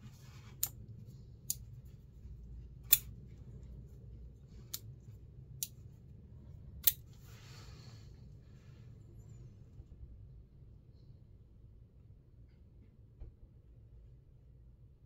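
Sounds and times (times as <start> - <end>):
soft rustle: 0.0 - 6.5, 7.1 - 9.0
folding knife blade clicking: 2.9 - 3.1.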